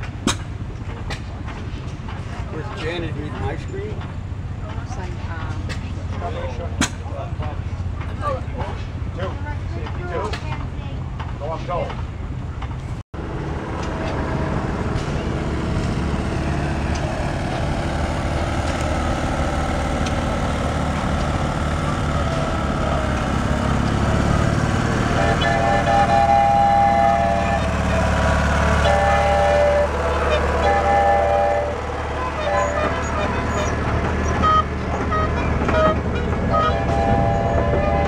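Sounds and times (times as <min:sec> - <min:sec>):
small gasoline engines rumbling: 0:00.0 - 0:38.0
horn-like tone: 0:25.2 - 0:38.0.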